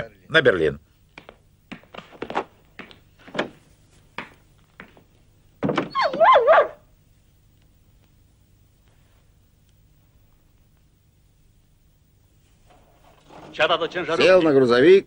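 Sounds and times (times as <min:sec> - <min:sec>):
dog whining: 0:05.9 - 0:06.8
soft knocks and scrapes: 0:12.5 - 0:14.0.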